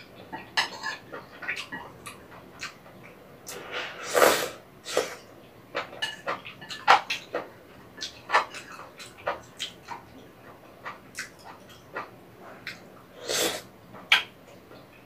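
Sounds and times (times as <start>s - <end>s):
slurping noodles: 3.5s - 5.2s.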